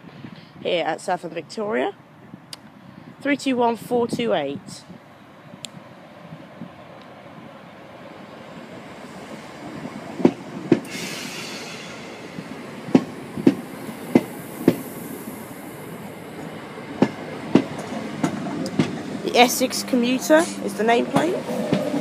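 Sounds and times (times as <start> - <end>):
train brief hiss: 10.8 - 12.7
train wheels clicking over rail joint: 16.4 - 19.1.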